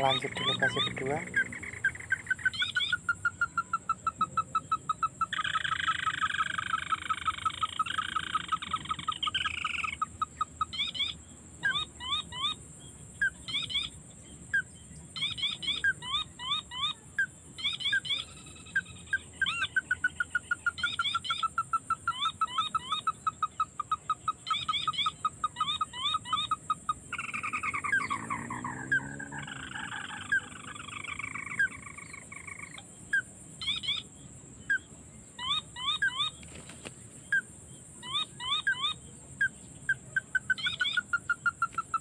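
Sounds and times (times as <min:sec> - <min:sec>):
bird calling rising notes: 0:00.0 - 0:12.5, 0:24.5 - 0:39.0.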